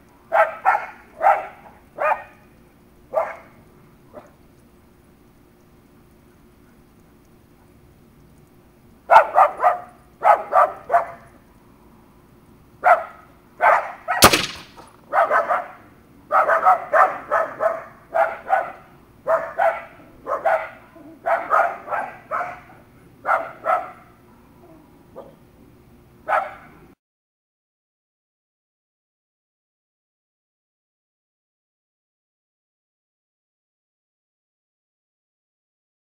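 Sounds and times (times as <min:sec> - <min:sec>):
dog barking: 0:00.3 - 0:02.4, 0:03.1 - 0:04.4, 0:09.1 - 0:11.3, 0:12.8 - 0:14.2, 0:15.1 - 0:24.2, 0:25.1 - 0:25.4, 0:26.2 - 0:26.8
air rifle shot: 0:14.2 - 0:15.0.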